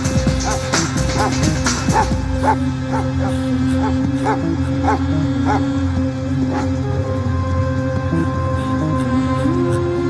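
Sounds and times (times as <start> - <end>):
dramatic film score drone: 0.0 - 10.0
dog barking: 0.4 - 3.3, 4.2 - 5.6.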